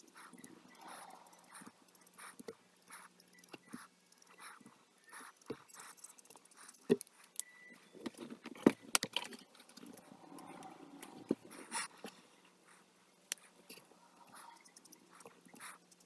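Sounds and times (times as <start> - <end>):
marker nib rubbing on paper: 0.0 - 7.3, 14.2 - 16.0.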